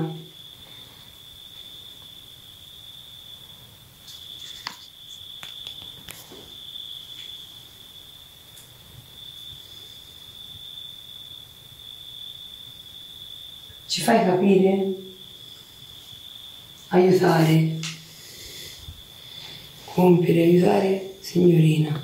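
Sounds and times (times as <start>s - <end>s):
crickets chirping: 0.0s - 22.0s.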